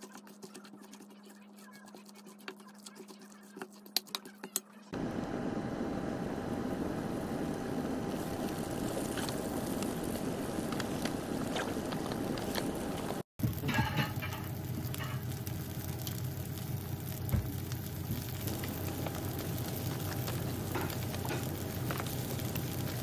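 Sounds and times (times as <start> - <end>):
spoon scraping metal bowl: 0.0 - 4.7
batter sizzling in oil: 6.3 - 23.0.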